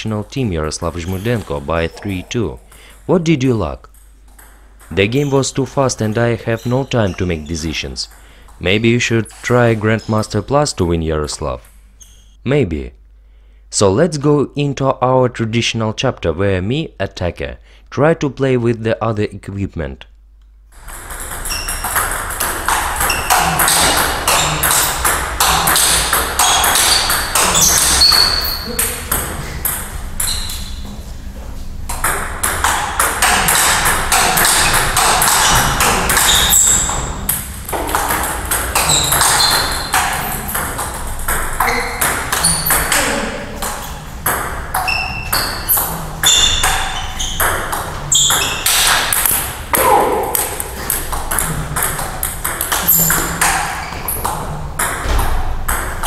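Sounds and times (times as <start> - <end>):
ping pong ball hitting bats: 3.8 - 7.4, 20.8 - 30.8, 31.9 - 56.0
ping pong ball bouncing on table: 20.8 - 30.4, 31.9 - 56.0.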